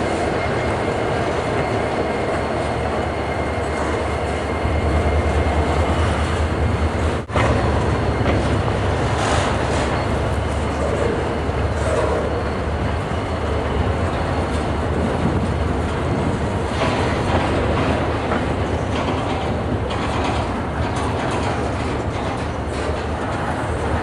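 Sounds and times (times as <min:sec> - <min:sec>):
rumble of steel wheels on rail: 0:00.0 - 0:24.0
wheels clicking over rail joints: 0:07.1 - 0:24.0.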